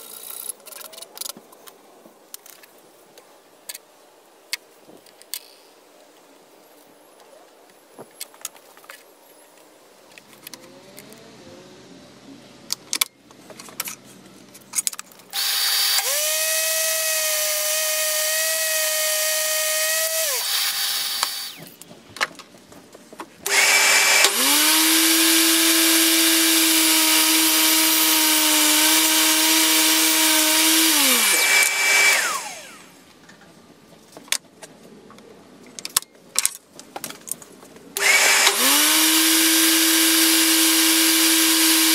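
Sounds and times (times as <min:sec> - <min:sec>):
table saw motor whine: 0:15.4 - 0:21.7, 0:23.5 - 0:33.0, 0:38.0 - 0:41.9.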